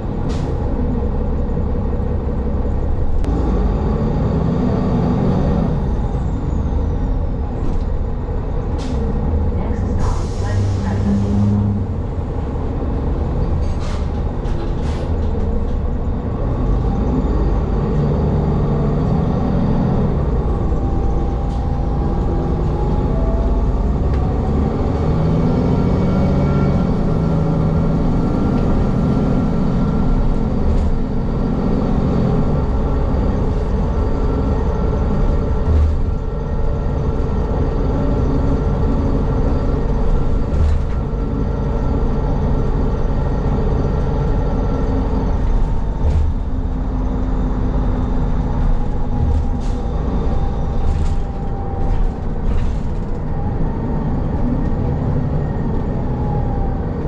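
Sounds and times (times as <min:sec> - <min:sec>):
bus engine and road rumble: 0:00.0 - 0:57.0.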